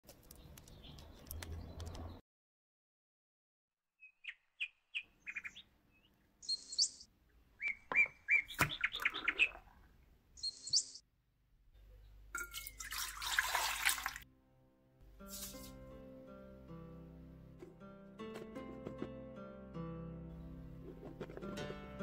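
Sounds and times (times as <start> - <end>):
birds chirping: 4.0 - 11.0
milk pouring into metal bowl: 12.4 - 14.2.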